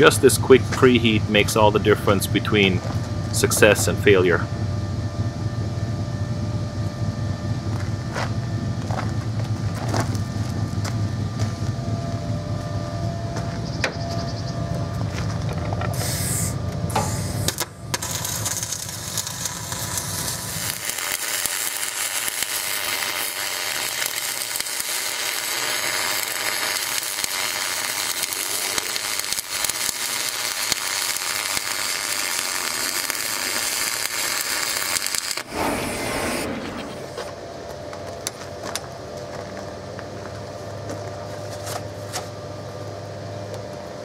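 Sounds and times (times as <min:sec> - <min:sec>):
low hum: 0:00.0 - 0:44.0
welding arc crackling: 0:16.0 - 0:37.4.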